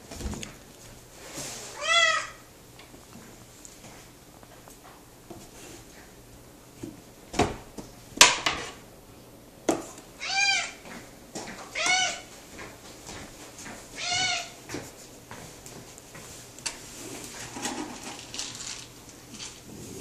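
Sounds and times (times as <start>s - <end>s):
cat meowing: 1.7s - 2.4s, 10.2s - 10.8s, 11.7s - 12.3s, 14.0s - 14.6s.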